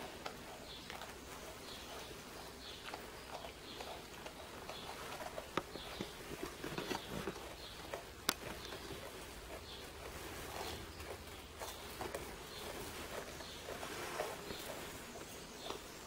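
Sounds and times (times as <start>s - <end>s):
animals chewing grass stalks: 0.0s - 16.0s
rustling of fabric and hay: 0.0s - 16.0s.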